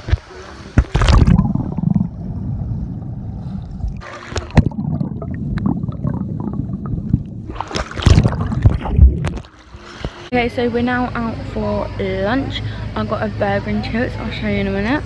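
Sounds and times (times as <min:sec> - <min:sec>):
muffled underwater bubbles: 0:00.0 - 0:10.2
loud water splashing: 0:00.8 - 0:10.2.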